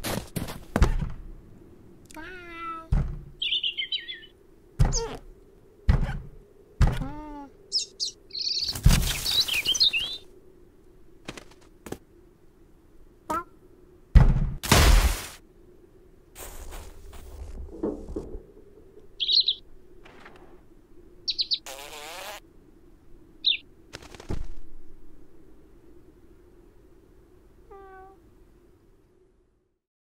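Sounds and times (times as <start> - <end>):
small bird chirping: 2.1 - 5.3, 7.0 - 10.3, 19.2 - 19.7, 21.2 - 22.4, 23.4 - 23.7
thumps and knocks on wooden door: 2.9 - 3.3
cartoon cat chattering: 6.9 - 7.5, 13.3 - 13.5
loud rushing thud: 14.2 - 15.4.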